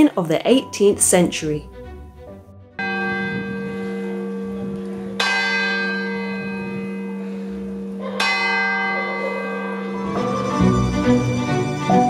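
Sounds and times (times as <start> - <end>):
church bell tolling: 2.8 - 12.0.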